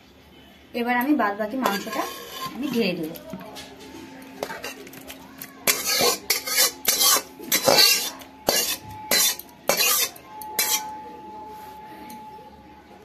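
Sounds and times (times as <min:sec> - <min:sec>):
spoon scraping metal pot: 0:01.5 - 0:03.2, 0:04.2 - 0:10.9.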